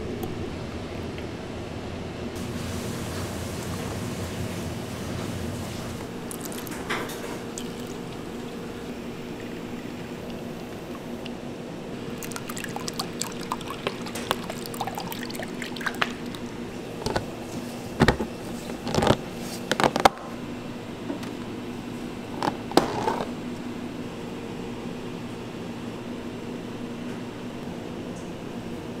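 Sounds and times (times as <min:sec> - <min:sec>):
bubbles crackling: 0:06.2 - 0:11.4, 0:12.0 - 0:17.5
liquid pouring into plastic tub: 0:06.3 - 0:10.9, 0:12.1 - 0:17.3.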